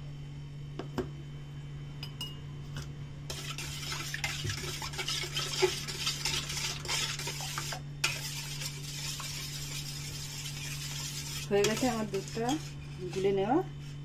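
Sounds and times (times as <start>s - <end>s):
metal spoon stirring in steel bowl: 3.3s - 14.0s.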